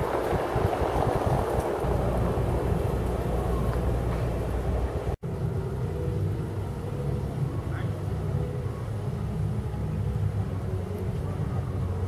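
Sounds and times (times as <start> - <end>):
wind buffeting microphone: 0.0 - 12.0.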